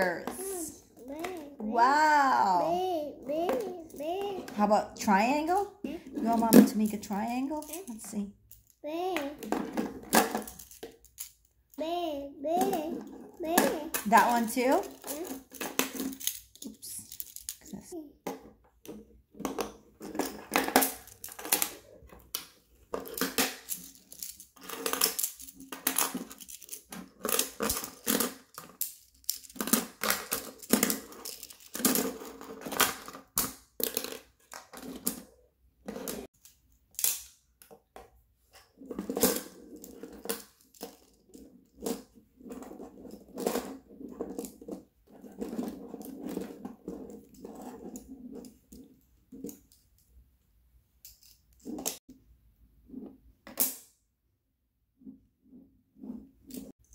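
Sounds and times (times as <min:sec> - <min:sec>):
tiles clattering on wooden table: 0:35.9 - 0:49.8.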